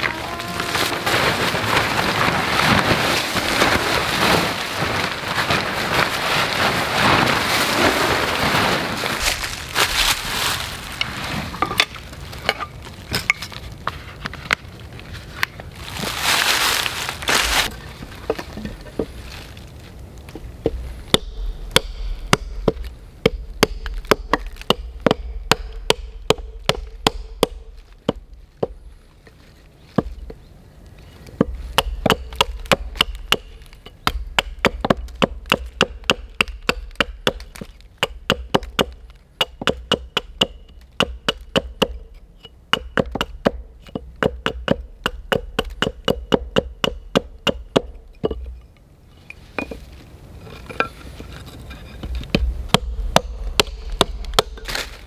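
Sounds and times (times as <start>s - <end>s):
hatchet chopping wood: 21.1s - 28.8s, 31.4s - 42.1s, 42.7s - 48.5s, 52.1s - 55.0s.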